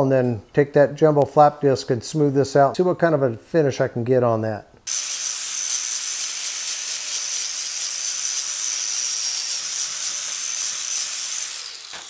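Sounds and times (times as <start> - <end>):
angle grinder grinding metal: 4.9 - 12.0
grinder winding down: 4.9 - 12.0.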